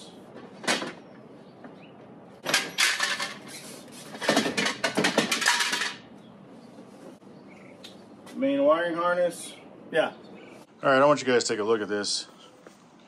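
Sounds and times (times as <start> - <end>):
plastic bumper clattering: 4.1 - 6.0.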